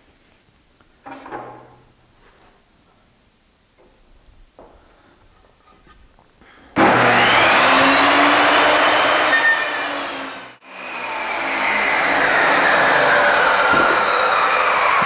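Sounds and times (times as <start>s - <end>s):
table saw ripping wood: 6.8s - 15.0s.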